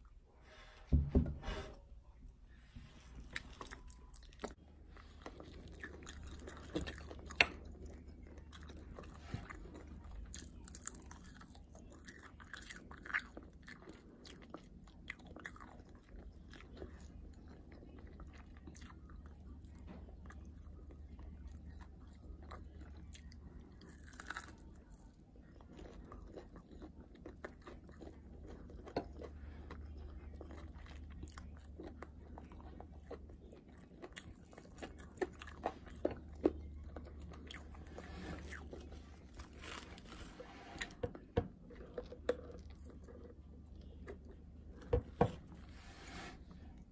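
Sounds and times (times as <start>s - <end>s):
chewing fried chicken: 3.2s - 45.6s
crispy breading crunches: 22.8s - 37.8s.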